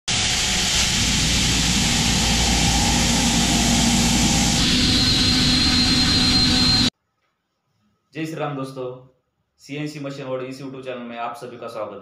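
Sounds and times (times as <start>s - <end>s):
high cutter whine: 0.1s - 6.9s
milling machine running: 0.1s - 6.9s.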